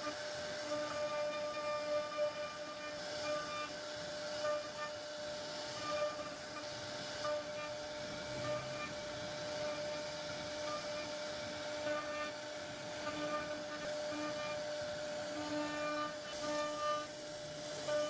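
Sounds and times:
hiss of bit cutting wood: 0:00.0 - 0:18.0
router spindle whine: 0:00.0 - 0:18.0
short high-pitched machine tones: 0:05.6 - 0:11.2.

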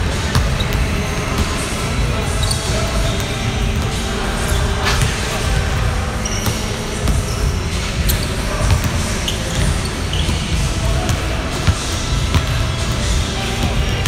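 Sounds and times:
basketballs bouncing on hardwood: 0:06.4 - 0:14.0.

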